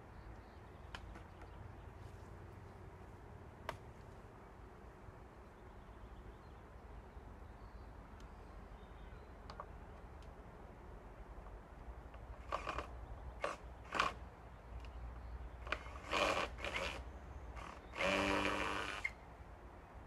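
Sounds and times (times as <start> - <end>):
power drill bursts: 12.4 - 14.2, 15.6 - 17.0, 17.6 - 19.2.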